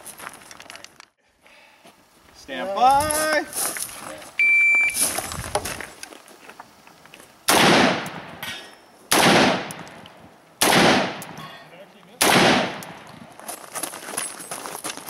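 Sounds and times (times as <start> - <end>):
rifle shots with echo: 7.5 - 8.4, 9.1 - 10.0, 10.6 - 11.4, 12.2 - 13.1.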